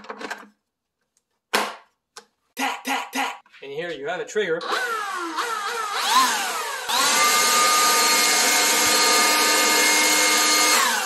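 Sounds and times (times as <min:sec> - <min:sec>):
leaf blower whine and air rush: 0:04.6 - 0:11.0.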